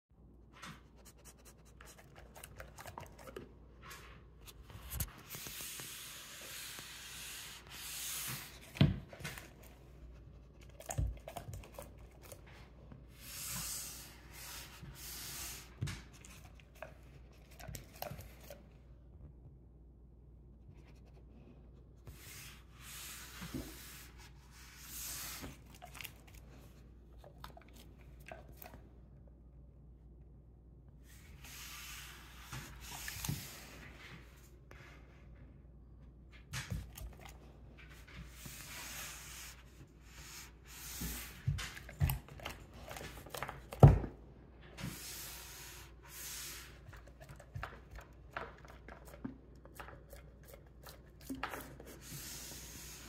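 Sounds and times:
dog snuffling and licking: 0.8s - 18.8s, 23.0s - 28.8s, 36.6s - 44.0s, 44.8s - 53.0s.

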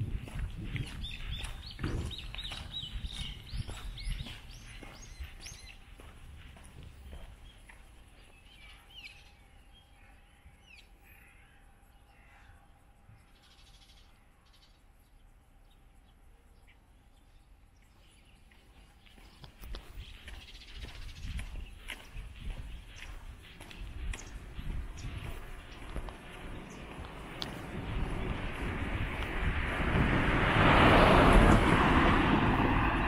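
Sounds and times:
footsteps thumping: 0.0s - 7.9s, 19.1s - 29.4s
small birds chirping: 0.0s - 29.5s.

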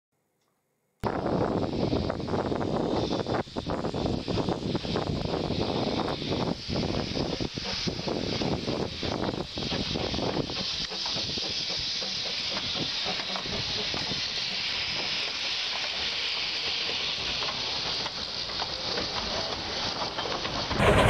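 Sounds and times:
running train: 1.1s - 21.0s
steam locomotive hissing: 1.1s - 21.0s.

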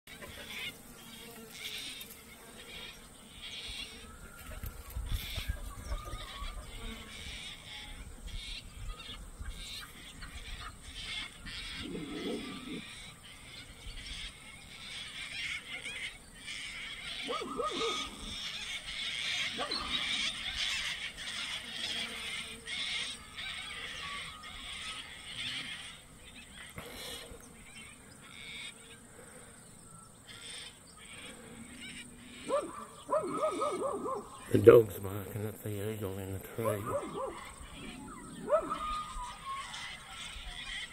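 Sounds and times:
dog barking: 17.2s - 18.1s, 19.6s - 20.0s, 32.4s - 34.3s, 36.8s - 37.6s, 38.4s - 39.0s.

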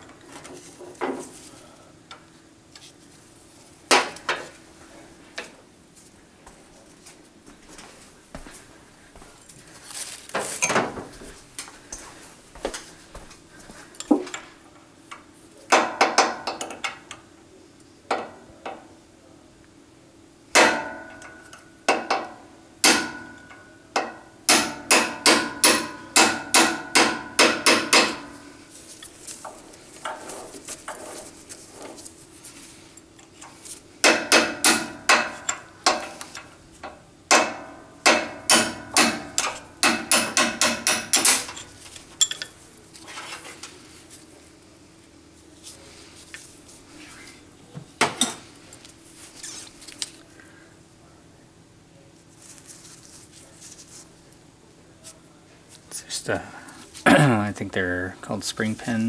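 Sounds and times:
hammer tapping metal punch: 20.6s - 28.4s, 34.0s - 36.2s, 36.8s - 42.5s.

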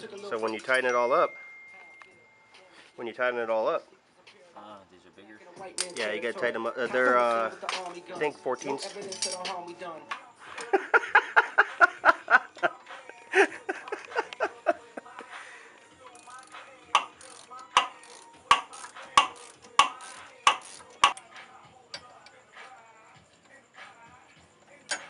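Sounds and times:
hand ratchet clicking: 16.0s - 21.3s.

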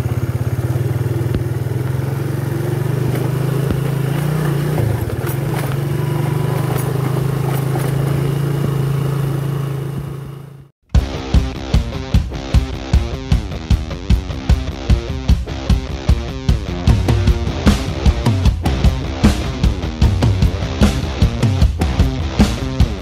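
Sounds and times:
motorcycle engine running: 0.0s - 23.0s
music: 10.8s - 23.0s.

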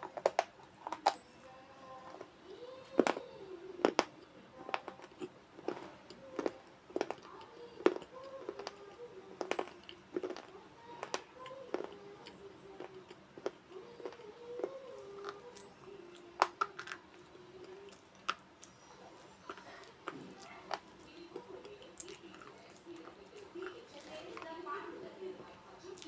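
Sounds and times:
chewing crunches: 3.8s - 24.6s.

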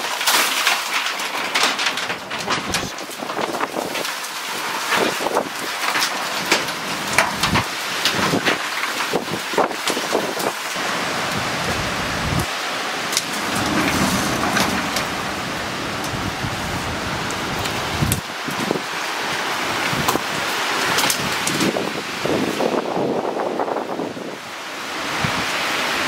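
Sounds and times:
wind and rain rushing: 0.0s - 26.0s
gusts hitting microphone: 7.0s - 18.9s.

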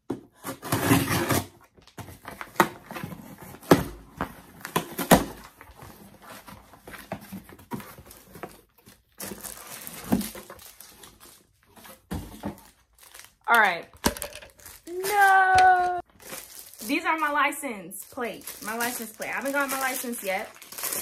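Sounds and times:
packaging rustle: 5.3s - 13.4s, 14.5s - 17.3s, 18.0s - 21.0s
cardboard knocks and scrapes: 11.7s - 12.7s.

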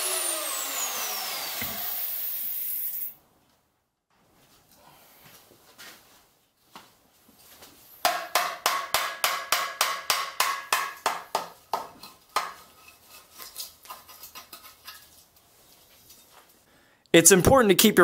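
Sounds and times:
sharp metal knocks: 8.0s - 12.6s.

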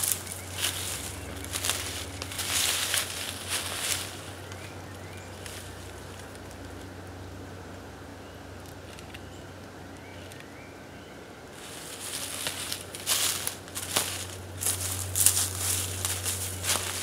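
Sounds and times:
footsteps crunching dry leaves: 0.0s - 6.8s, 11.6s - 17.0s.

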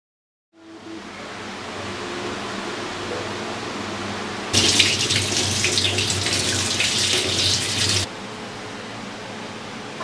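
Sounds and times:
tap water splashing into sink: 4.6s - 8.1s.

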